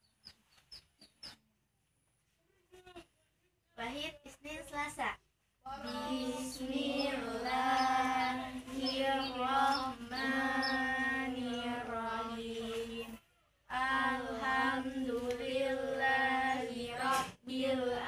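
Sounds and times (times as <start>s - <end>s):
children chanting: 5.7s - 18.0s.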